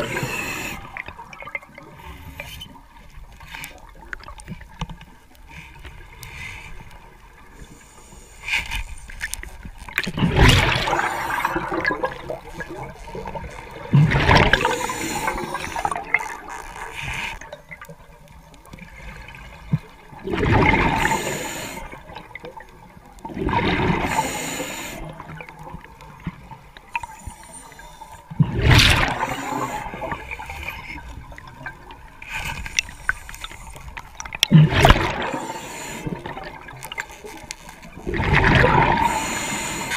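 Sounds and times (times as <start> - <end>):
diver's exhaled bubbles gurgling: 10.0 - 17.8, 19.1 - 22.6, 23.2 - 25.9, 27.0 - 37.1, 37.9 - 39.9.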